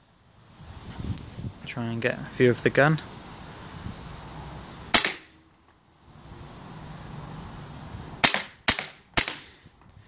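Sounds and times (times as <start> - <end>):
airsoft pistol shots cracking: 4.9 - 5.3, 8.2 - 9.5.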